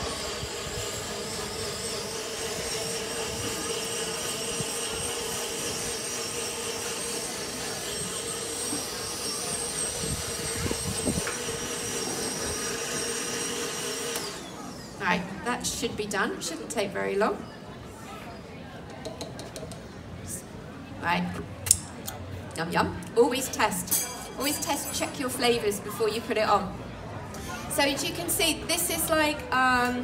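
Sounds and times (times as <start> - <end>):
blender running: 0.0 - 15.4.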